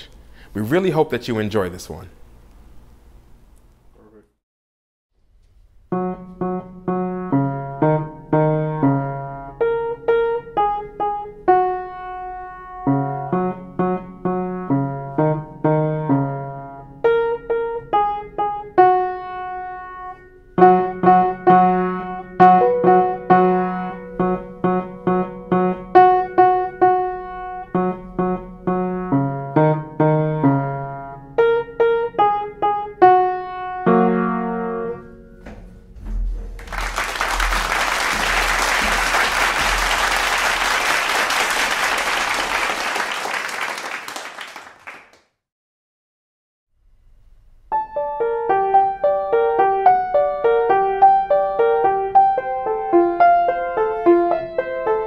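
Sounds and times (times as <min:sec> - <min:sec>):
upright piano piece: 0:05.8 - 0:44.0, 0:47.7 - 0:55.0
applause: 0:36.6 - 0:45.4.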